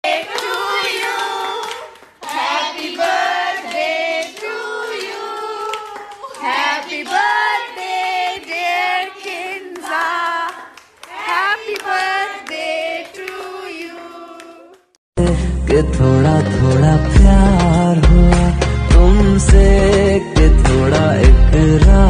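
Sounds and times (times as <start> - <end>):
girls singing together: 0.0 - 14.8
hands clapping: 0.1 - 15.0.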